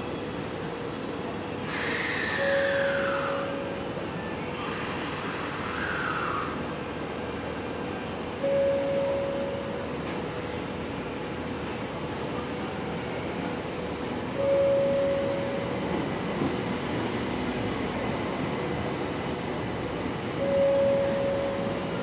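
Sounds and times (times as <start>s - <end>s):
metro train pulling in: 0.0s - 22.0s
steady beep: 20.4s - 21.8s.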